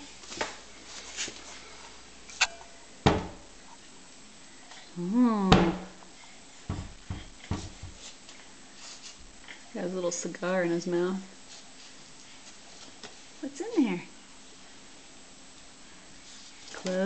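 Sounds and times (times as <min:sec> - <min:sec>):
cabinet door knocking shut: 0:03.0 - 0:03.4.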